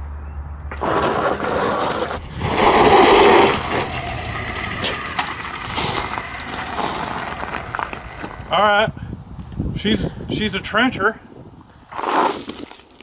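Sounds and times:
gravel crunching under spinning wheels: 0:00.6 - 0:09.8, 0:11.8 - 0:13.0.

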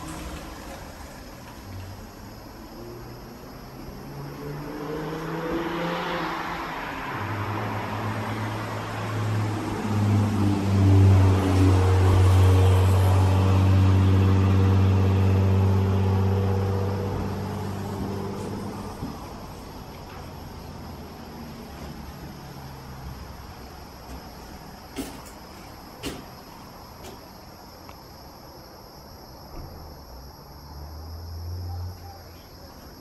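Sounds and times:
engine low drone: 0:07.1 - 0:25.9.

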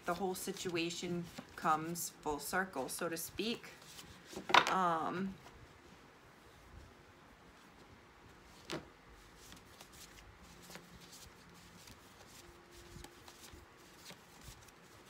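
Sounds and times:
cards clicking and rustling: 0:08.6 - 0:15.0.

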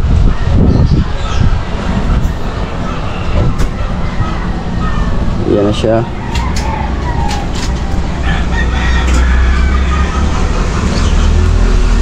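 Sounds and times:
rooster crowing: 0:06.0 - 0:10.6.

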